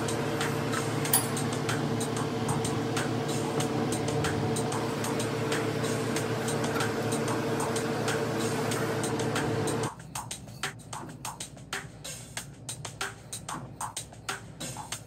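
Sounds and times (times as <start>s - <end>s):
machine hum: 0.0s - 9.9s.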